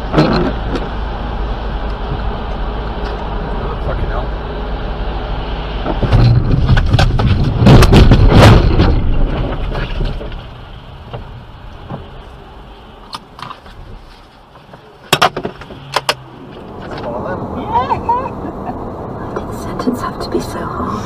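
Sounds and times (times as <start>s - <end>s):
car driving on wet road: 0.0s - 21.0s
sharp knocks and clatter: 5.8s - 12.1s, 13.1s - 16.2s.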